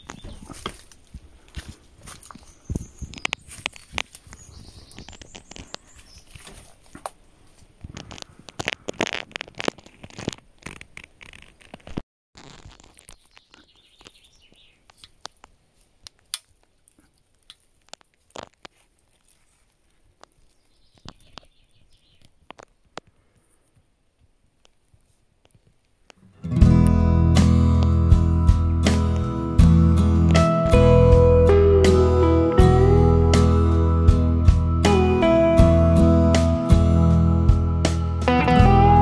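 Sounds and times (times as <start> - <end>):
footsteps through dry undergrowth: 0.0 - 11.8, 12.4 - 22.5
twigs and leaves crackling: 0.0 - 26.3.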